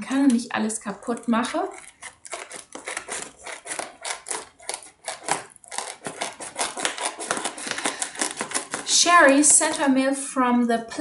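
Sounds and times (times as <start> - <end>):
scissors cutting foil mailer: 1.1 - 9.9.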